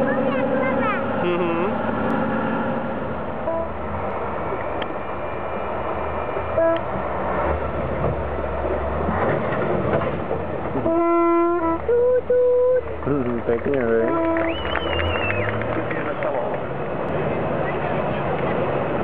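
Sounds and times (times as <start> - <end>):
truck engine under load: 0.0 - 19.0
truck horn: 3.4 - 3.8, 6.5 - 6.9, 10.8 - 12.9, 14.0 - 15.6.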